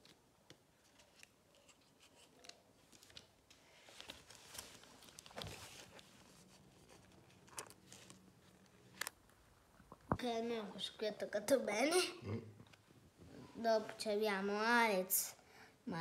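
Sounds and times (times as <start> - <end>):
paper rustle: 0.8 - 9.1.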